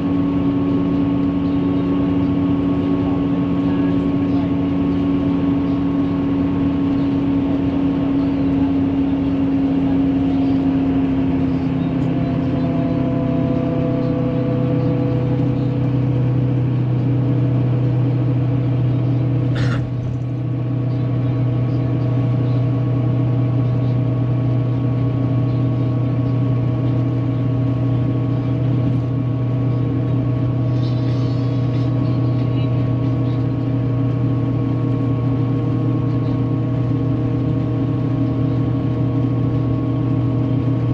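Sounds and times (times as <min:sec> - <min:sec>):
coach engine drone: 0:00.0 - 0:40.9
road noise: 0:00.0 - 0:40.9.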